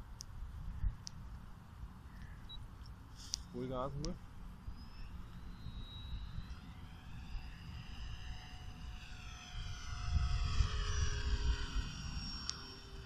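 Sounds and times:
model airplane engine passing: 0:03.4 - 0:13.0.

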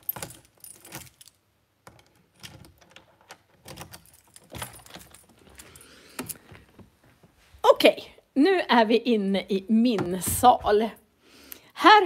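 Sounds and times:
door unlocking and opening: 0:00.0 - 0:06.8
keys jingling: 0:00.0 - 0:06.8.

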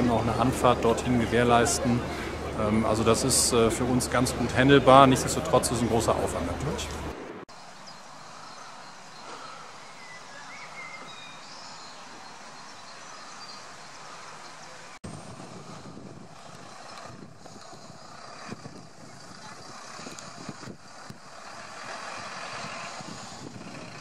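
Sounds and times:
distant vehicle traffic: 0:00.0 - 0:24.0
faint chirps: 0:07.5 - 0:15.0.

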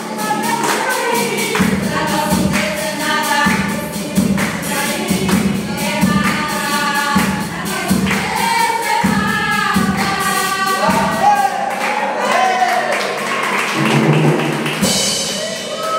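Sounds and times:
women singing a hymn: 0:00.0 - 0:11.3
rhythmic hand clapping: 0:00.0 - 0:15.9.

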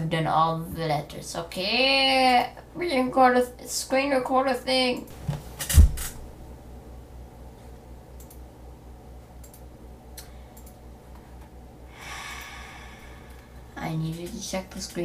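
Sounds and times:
low steady hum: 0:00.0 - 0:15.0
computer mouse clicks: 0:08.2 - 0:08.4, 0:09.4 - 0:10.8.

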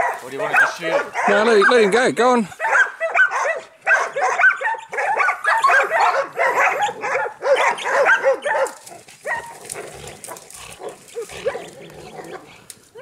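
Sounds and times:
dogs barking excitedly: 0:00.0 - 0:13.0
scuffling in brush: 0:08.4 - 0:13.0.

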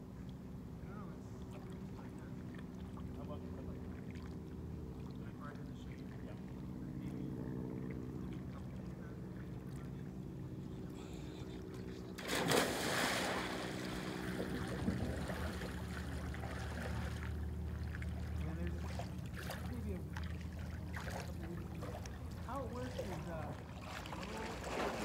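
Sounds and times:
steady low hum: 0:00.0 - 0:25.0
water sloshing: 0:01.2 - 0:25.0
loud splash into water: 0:12.2 - 0:15.7.

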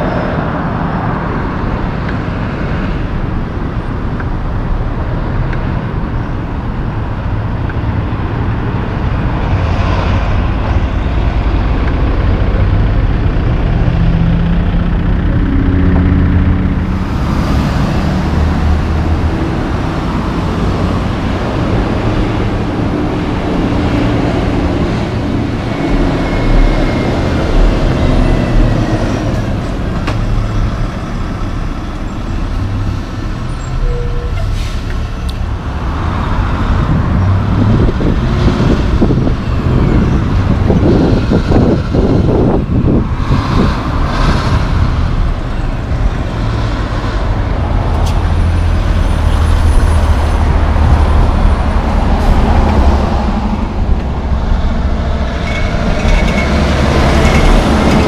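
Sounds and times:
trucks and cars passing: 0:00.0 - 0:58.0
wind buffeting microphone: 0:35.4 - 0:58.0.

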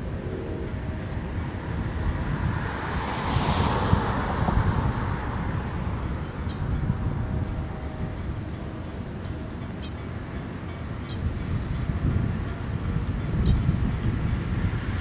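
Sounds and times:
wind noise on microphone: 0:00.0 - 0:15.0
distant steam locomotive rumble: 0:04.4 - 0:15.0.

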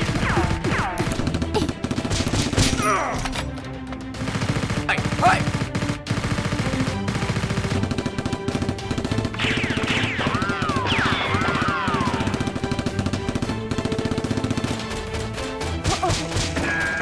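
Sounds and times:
background music: 0:00.0 - 0:17.0
automatic gunfire sound effects: 0:04.0 - 0:17.0.

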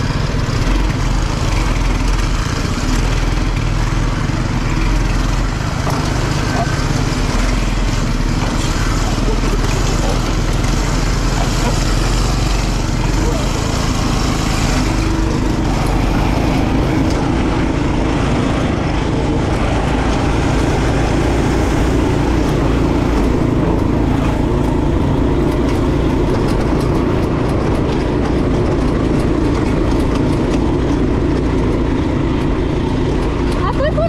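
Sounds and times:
go-kart engine running: 0:00.0 - 0:34.0
rushing noise over dirt: 0:00.0 - 0:34.0.

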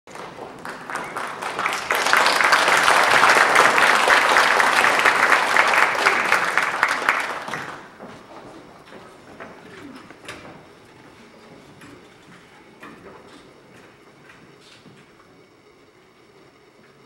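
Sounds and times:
audience applauding: 0:00.1 - 0:08.2.

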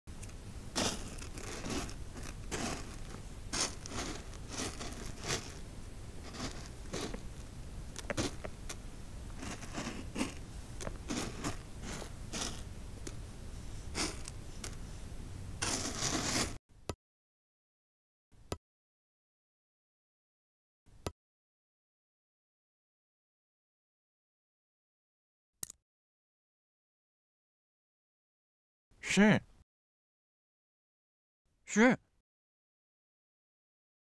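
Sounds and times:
steady low hum: 0:00.1 - 0:16.6
crunchy scraping rustles: 0:00.2 - 0:13.2, 0:13.8 - 0:15.0, 0:15.6 - 0:16.6.

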